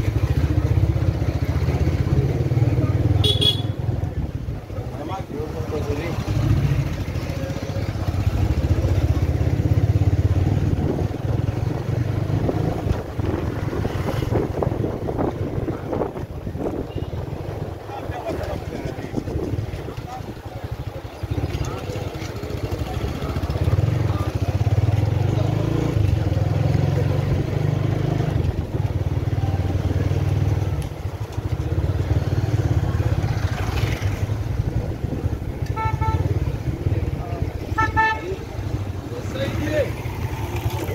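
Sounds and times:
motorcycle engine running: 0.0 - 40.9
horn beeping: 3.2 - 3.8, 35.7 - 36.4.

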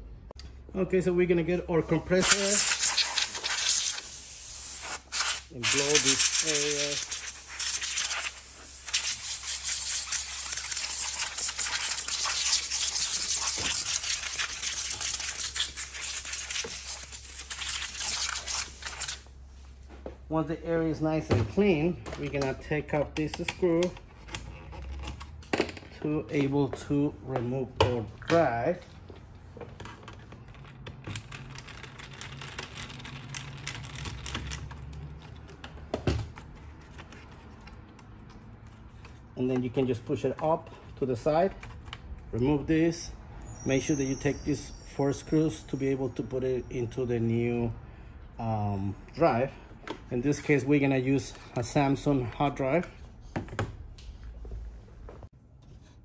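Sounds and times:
compressed air hissing spurts: 2.2 - 19.3.

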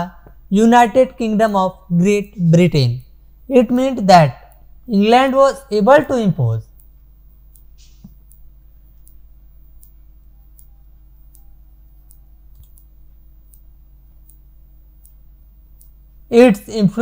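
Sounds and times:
low steady hum: 0.0 - 17.0
faint clicks: 6.8 - 16.1.

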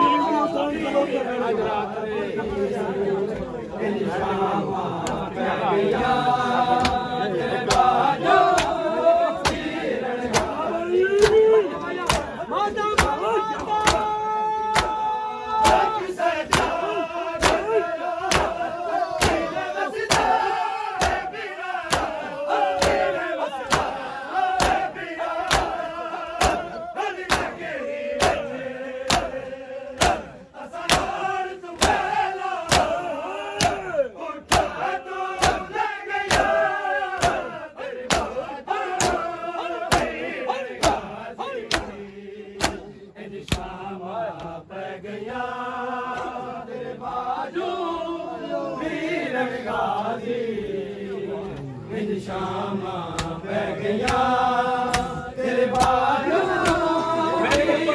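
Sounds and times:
men chanting a lament: 0.0 - 57.9
hands slapping bare chests: 6.8 - 7.0, 7.7 - 8.8, 9.4 - 12.3, 12.9 - 16.8, 17.4 - 18.6, 19.2 - 19.5, 20.1 - 20.4, 21.0 - 24.0, 24.6 - 25.8, 26.4 - 26.7, 27.3 - 27.6, 28.2 - 28.4, 29.1 - 29.4, 30.0 - 31.2, 31.8 - 33.0, 33.6 - 33.8, 34.4 - 36.6, 37.2 - 37.5, 38.1 - 38.4, 39.0 - 39.3, 39.9 - 40.2, 41.7 - 42.0, 42.6 - 43.7, 53.1 - 53.4, 54.0 - 54.3, 54.9 - 57.8.

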